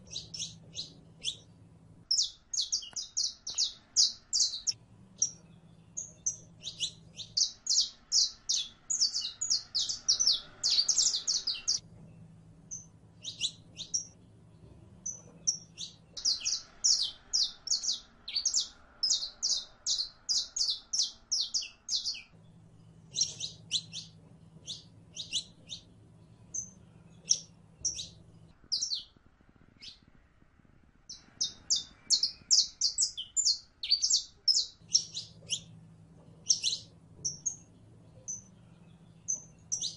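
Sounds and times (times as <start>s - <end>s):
finch singing high chirps: 0.0s - 1.5s, 2.1s - 11.8s, 12.7s - 29.2s, 29.8s - 30.0s, 31.1s - 39.9s.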